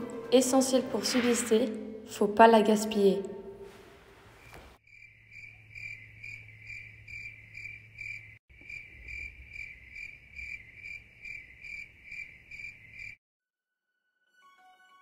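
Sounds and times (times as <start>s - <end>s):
cricket chirping: 4.9s - 13.2s.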